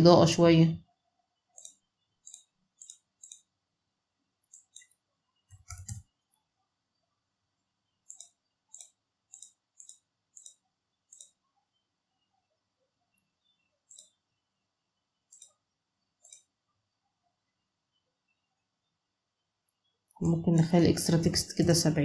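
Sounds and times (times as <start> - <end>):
computer mouse clicking: 1.5 - 3.5, 4.4 - 6.1, 8.0 - 11.4, 13.8 - 14.2, 15.3 - 16.6.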